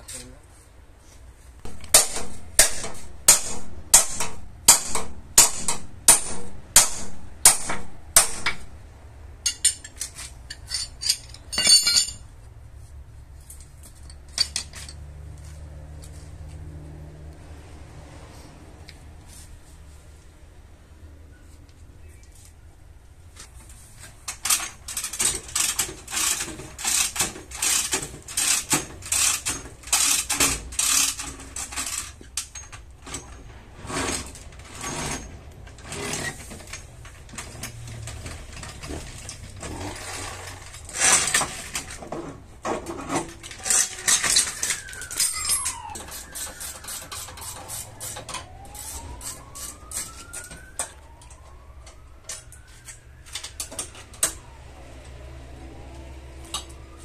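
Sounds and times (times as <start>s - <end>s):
steel chain clanking against metal: 9.4s - 12.3s, 13.6s - 15.1s, 43.2s - 46.0s
faint wailing tone: 43.7s - 57.0s.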